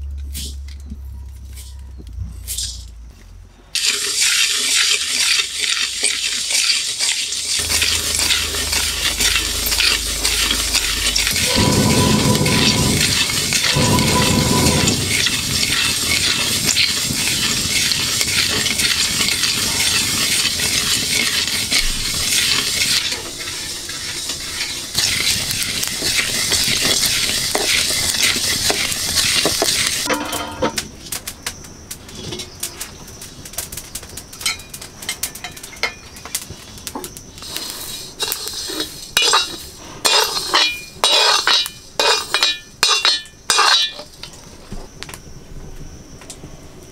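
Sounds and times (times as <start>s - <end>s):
spices dry-roasting in a wok: 0.0s - 3.0s, 3.7s - 46.9s
wooden spatula stirring seeds: 3.8s - 30.1s, 37.4s - 43.9s
metal ladle scraping a wok: 3.8s - 30.7s, 37.7s - 44.1s.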